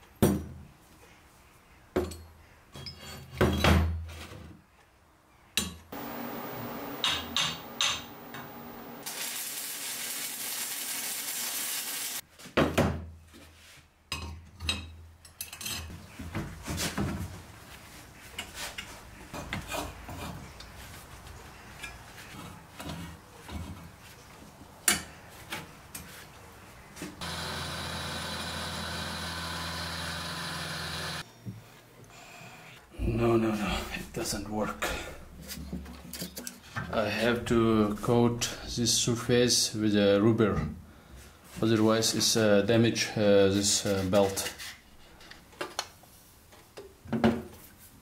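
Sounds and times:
machine humming: 0:06.0 - 0:09.7, 0:27.2 - 0:31.2
steady hiss: 0:06.0 - 0:12.2.

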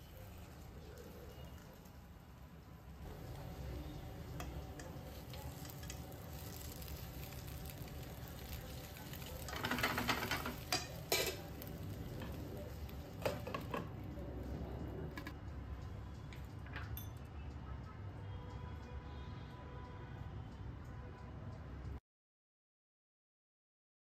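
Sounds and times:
dumplings sizzling in oil: 0:00.0 - 0:14.1
fork scraping a pan: 0:09.2 - 0:12.4.

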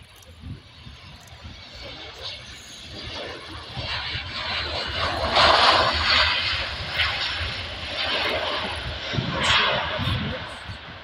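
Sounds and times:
jet engines rushing: 0:00.0 - 0:11.0.

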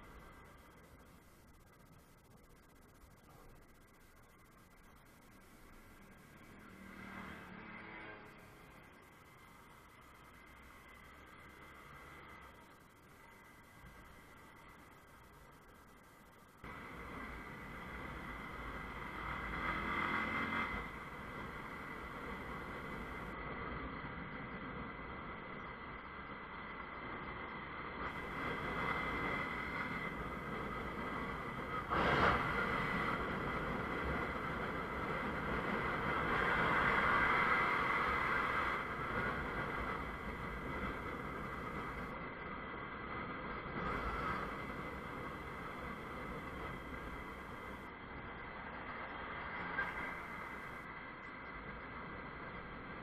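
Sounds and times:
wind noise: 0:27.1 - 0:47.9.

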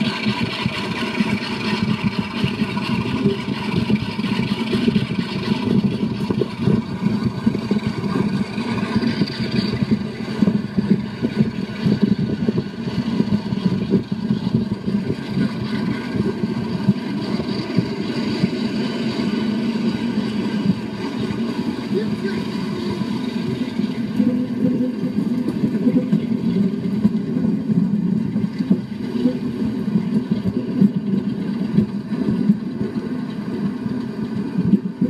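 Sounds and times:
train rumbling on track: 0:00.0 - 0:35.0.

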